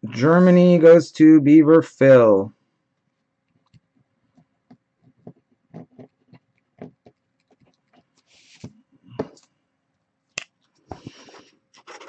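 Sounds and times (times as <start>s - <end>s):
small objects tapping on desk: 3.6s - 8.0s
scratchy rustle: 7.4s - 8.7s, 11.0s - 12.0s.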